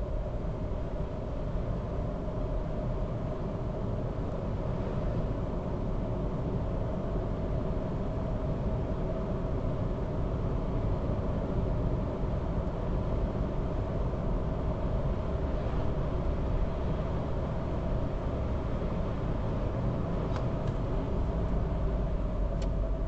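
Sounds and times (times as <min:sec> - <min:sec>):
car engine and tyre rumble: 0:00.0 - 0:23.0.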